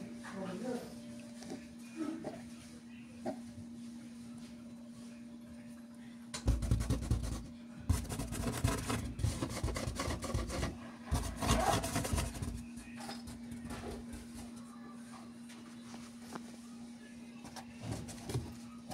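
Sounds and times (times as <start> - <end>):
scraping on corrugated cardboard: 6.5 - 12.7.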